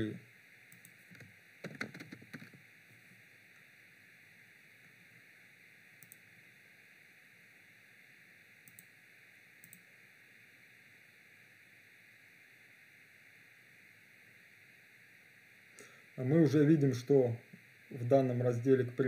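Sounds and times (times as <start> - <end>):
faint room tone hiss: 0.0 - 19.0
computer mouse clicks: 0.7 - 2.6, 6.0 - 6.2, 8.6 - 8.9, 9.6 - 9.9.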